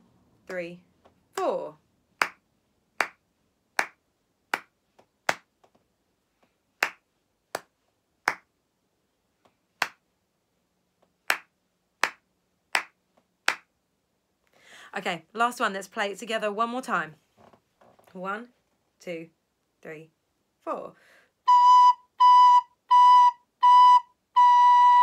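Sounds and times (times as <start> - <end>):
person clapping hands: 2.2 - 2.4, 3.0 - 3.2, 3.8 - 5.5, 6.8 - 8.5, 9.8 - 10.0, 11.3 - 12.2, 12.8 - 13.7.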